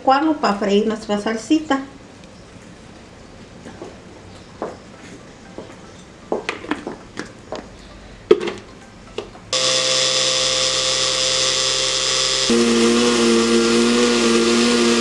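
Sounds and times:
blender motor whining: 9.5 - 15.0.

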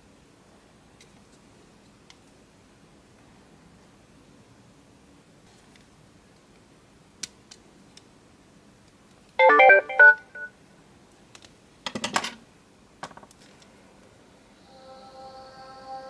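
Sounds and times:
electronic start-up jingle: 9.4 - 10.5.

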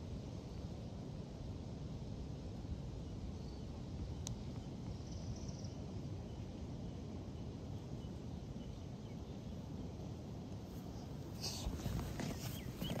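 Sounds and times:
low outdoor rumble: 0.0 - 13.0
faint high chirps: 11.0 - 13.0.

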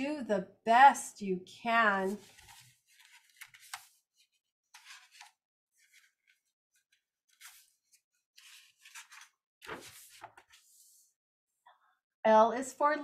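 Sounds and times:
paper pages rustling: 2.0 - 11.1.

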